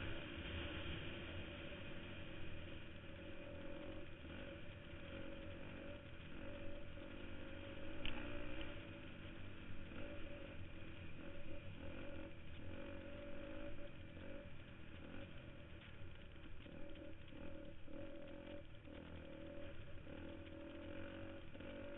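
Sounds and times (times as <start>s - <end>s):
dirt bike engine revving: 0.0s - 21.9s
sharp tick: 7.9s - 8.7s.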